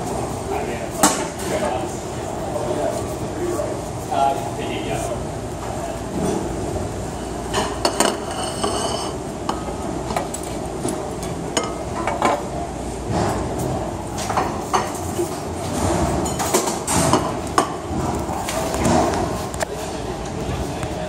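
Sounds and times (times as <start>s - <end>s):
dishes and utensils clattering: 7.4s - 10.5s, 11.5s - 12.5s, 14.2s - 19.3s.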